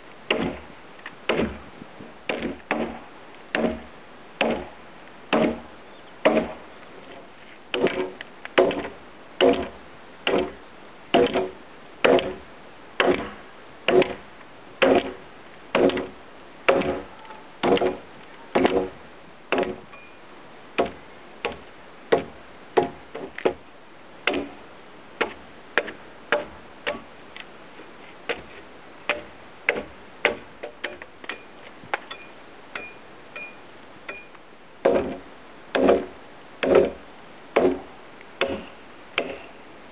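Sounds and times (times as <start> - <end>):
axe chopping timber: 0.3 - 0.7, 1.3 - 1.7, 2.3 - 12.4, 13.0 - 14.2, 14.8 - 18.0, 18.6 - 19.9, 20.8 - 23.6, 24.3 - 24.6, 25.2 - 27.1, 29.1 - 31.0, 34.8 - 37.0, 37.6 - 39.5.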